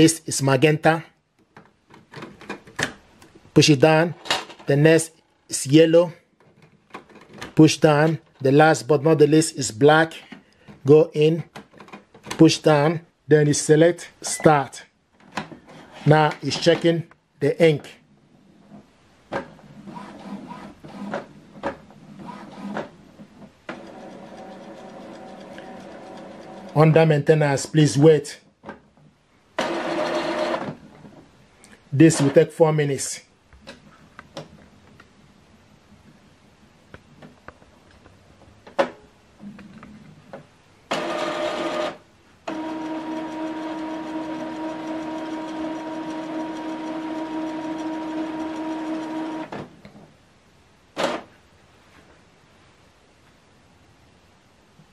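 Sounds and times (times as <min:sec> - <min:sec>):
printer mechanism whirring: 0:23.7 - 0:26.8, 0:29.6 - 0:30.8, 0:40.9 - 0:49.7, 0:51.0 - 0:51.3
printer motor humming: 0:29.6 - 0:30.6, 0:40.9 - 0:49.6
sharp printer clicks: 0:40.9 - 0:49.6.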